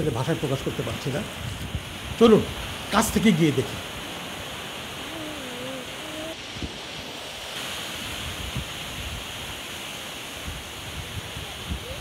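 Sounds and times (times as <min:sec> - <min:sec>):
sea surf: 0:00.0 - 0:12.0
wind: 0:00.0 - 0:12.0
distant wavering voice call: 0:05.0 - 0:06.4.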